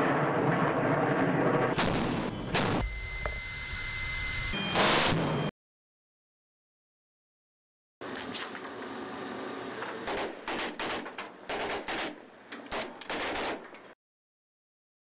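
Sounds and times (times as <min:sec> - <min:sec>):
automatic rifle fire: 0:10.0 - 0:13.6.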